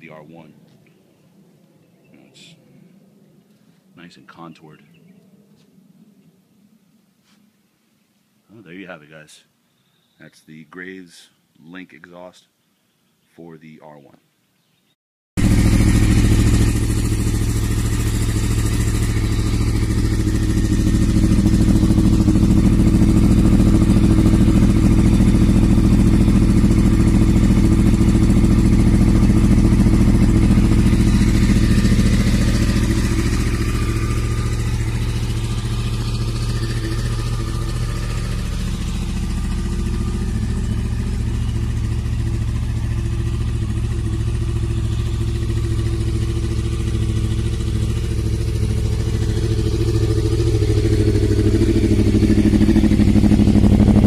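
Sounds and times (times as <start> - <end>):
motorcycle engine idling: 15.4 - 54.0.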